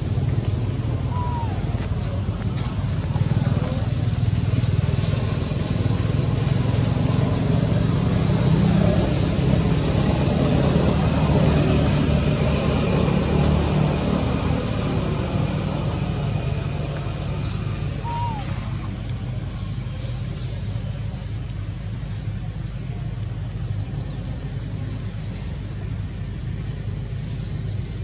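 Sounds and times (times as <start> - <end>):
road traffic rumble: 0.0 - 28.0.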